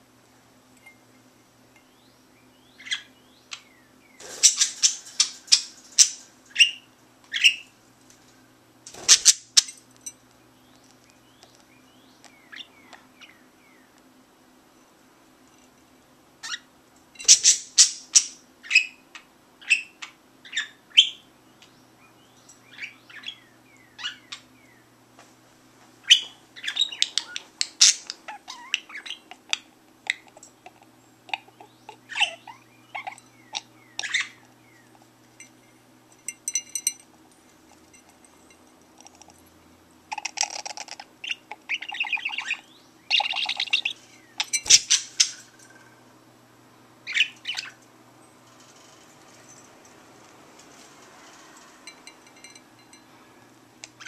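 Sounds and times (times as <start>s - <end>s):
budgerigar chirping and warbling: 26.1s - 29.5s, 31.3s - 34.4s, 40.1s - 45.4s, 47.1s - 47.8s.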